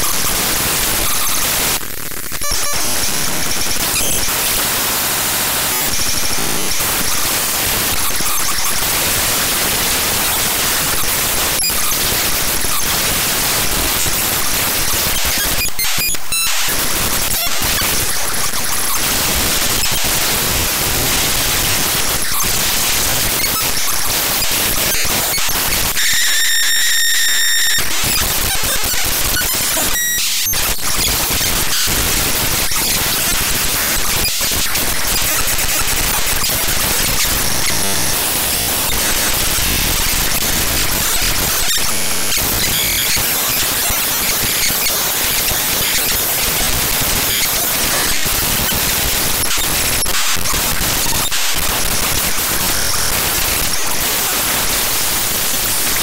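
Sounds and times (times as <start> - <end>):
harsh static-like noise: 0.0 - 56.0.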